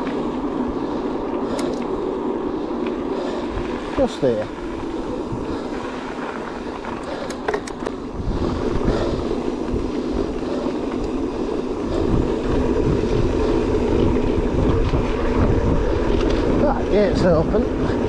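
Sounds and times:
rolling rumble of bike: 0.0 - 18.0
wind buffeting microphone: 0.0 - 18.0.

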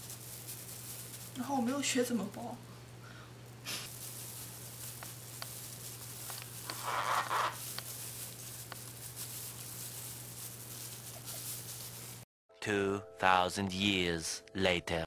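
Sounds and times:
leaves and plastic glove rustling: 0.0 - 2.6, 3.4 - 12.3
steady low hum: 0.0 - 6.9.

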